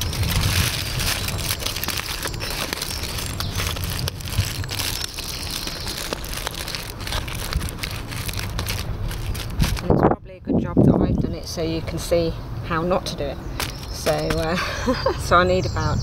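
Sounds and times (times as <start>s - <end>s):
aluminium foil crinkling: 0.0s - 10.2s, 13.6s - 14.5s.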